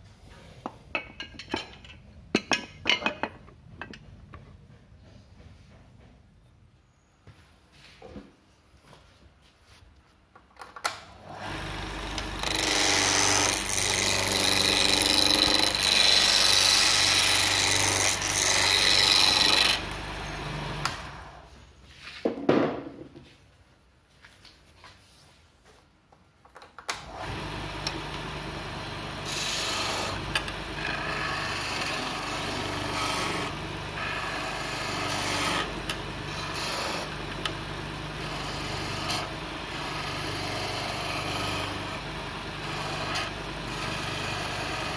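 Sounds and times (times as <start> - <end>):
lathe motor humming: 11.2 - 21.5, 27.1 - 44.9
chisel scraping spinning wood: 11.4 - 21.4, 27.2 - 44.9.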